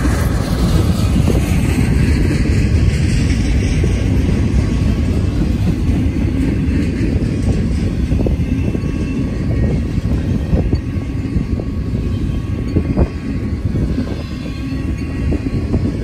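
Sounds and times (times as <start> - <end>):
train wheels rumbling on rails: 0.0 - 16.0.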